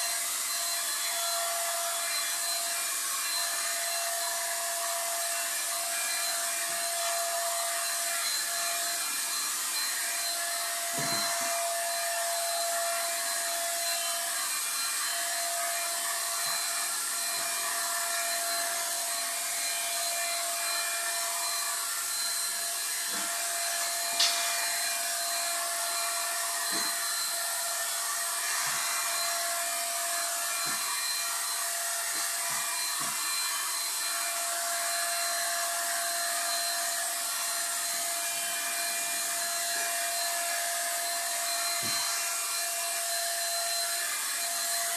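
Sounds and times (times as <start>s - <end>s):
power tool motor whine: 0.0s - 44.9s.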